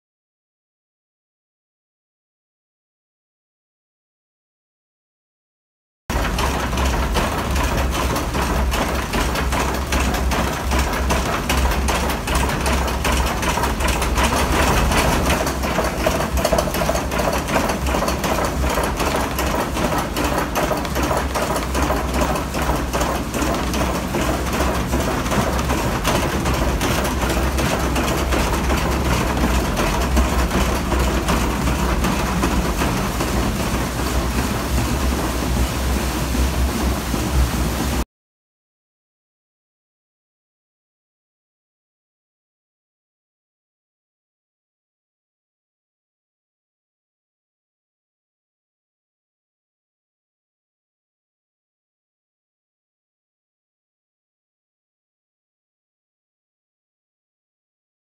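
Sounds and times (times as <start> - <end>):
wooden mill machinery clatter: 6.1 - 38.0.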